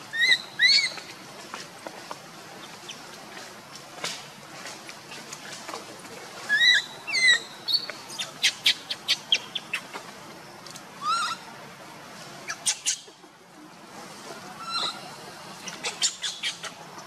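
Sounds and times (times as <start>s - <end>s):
baby monkey squeaky calls: 0.1s - 1.0s, 6.5s - 10.0s, 11.0s - 11.4s, 12.5s - 13.1s, 14.6s - 15.0s, 15.6s - 16.8s.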